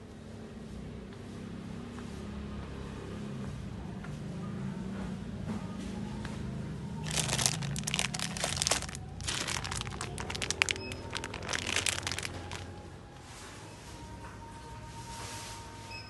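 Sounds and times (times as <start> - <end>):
low background hum: 5.4 - 16.0
plastic packaging crinkling: 7.0 - 12.8.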